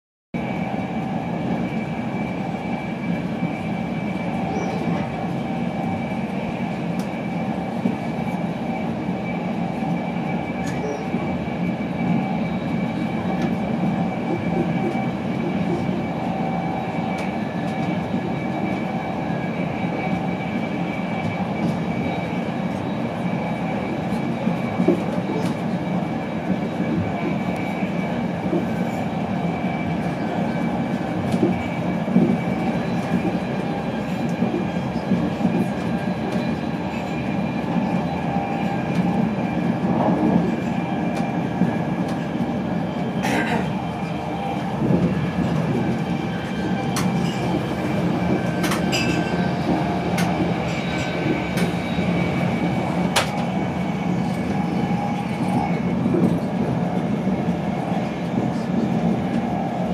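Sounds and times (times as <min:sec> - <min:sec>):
train wheels rumbling on track: 0:00.4 - 0:59.9.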